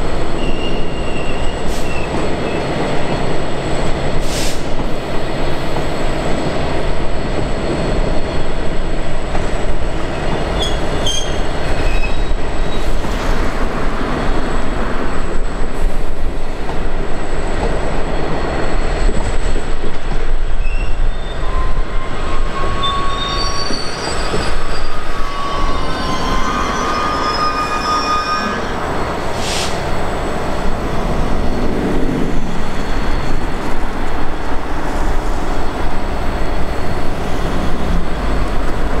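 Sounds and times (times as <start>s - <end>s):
wagons rumbling on rails: 0.0s - 39.0s
wheels squealing: 20.6s - 29.1s.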